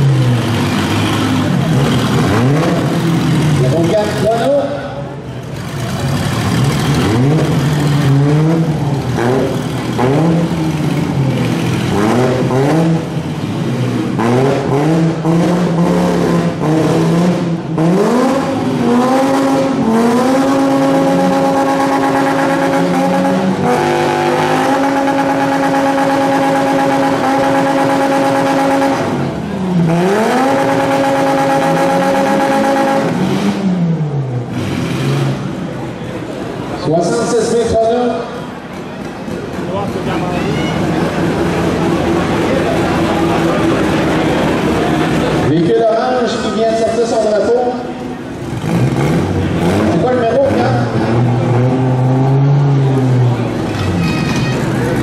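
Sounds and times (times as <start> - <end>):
car engines revving: 0.0 - 55.0.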